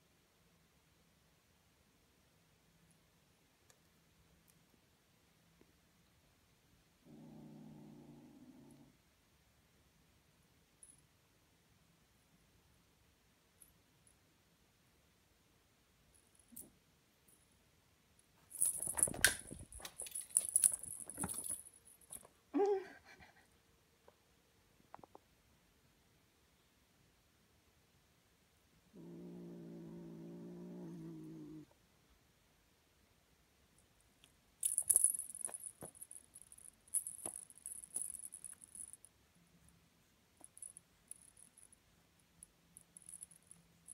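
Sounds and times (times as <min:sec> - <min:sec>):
kitten scuffling and rustling: 0:18.4 - 0:22.3
small jingle bell jingling: 0:18.4 - 0:22.3, 0:34.6 - 0:39.1, 0:40.4 - 0:43.9.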